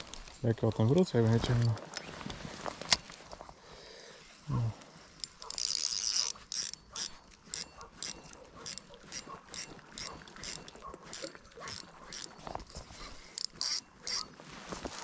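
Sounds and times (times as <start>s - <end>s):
fishing reel clicking: 5.2s - 14.3s.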